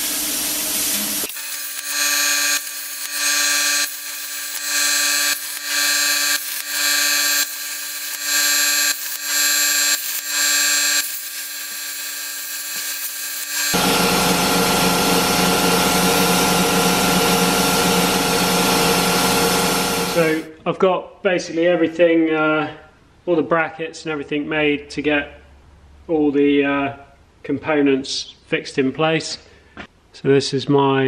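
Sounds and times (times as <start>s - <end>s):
plasma arc hissing: 0.0s - 20.4s
loud steady mechanical noise: 0.0s - 20.5s
machine hum: 1.0s - 20.5s.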